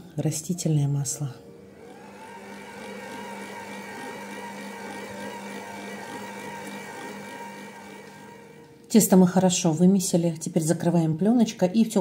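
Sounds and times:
stand mixer motor hum: 0:01.7 - 0:08.8.

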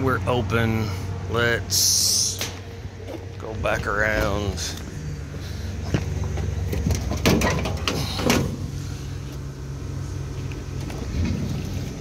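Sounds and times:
hvac equipment humming: 0:00.0 - 0:12.0
metal panels knocking and scraping: 0:06.7 - 0:08.6.

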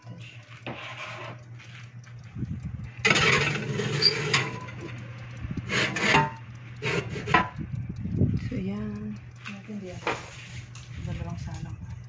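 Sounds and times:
ceramic dish scraping on wire rack: 0:00.6 - 0:01.4, 0:03.0 - 0:04.8, 0:05.7 - 0:07.5.

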